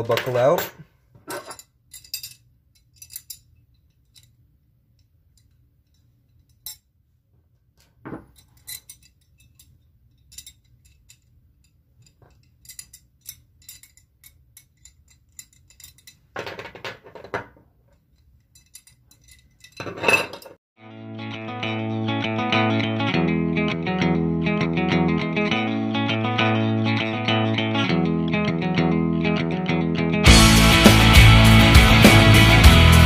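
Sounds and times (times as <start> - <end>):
metal buckles clicking and clinking: 0.0 - 4.4, 7.8 - 20.6
metal hardware clattering: 0.0 - 4.4, 7.9 - 11.3, 12.0 - 17.6, 18.4 - 20.6.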